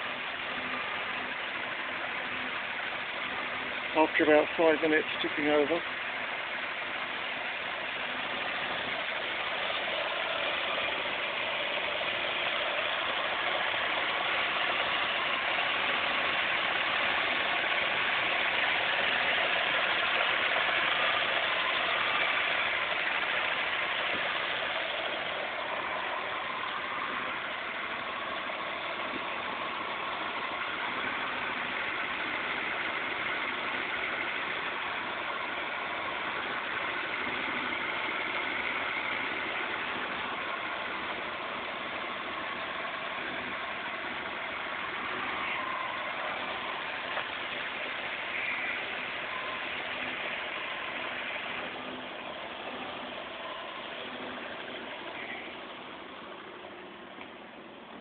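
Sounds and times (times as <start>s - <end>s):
car engine idling: 0.0s - 58.0s.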